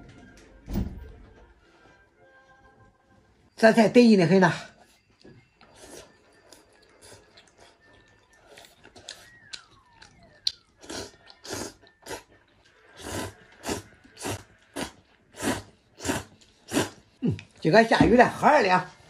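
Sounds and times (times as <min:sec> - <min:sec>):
person chewing: 0:05.6 - 0:17.6
person slurping noodles: 0:10.8 - 0:12.3, 0:13.0 - 0:17.2.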